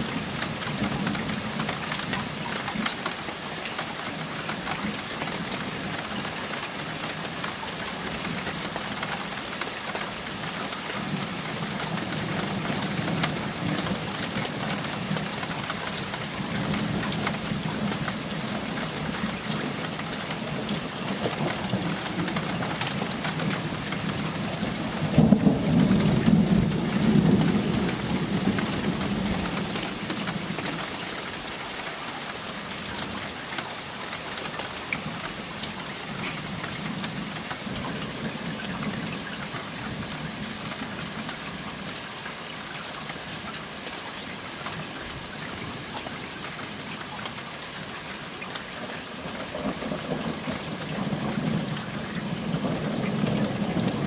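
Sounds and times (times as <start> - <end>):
steady rain falling: 0.0 - 54.0
thunder rumbling: 20.5 - 30.6, 49.3 - 54.0.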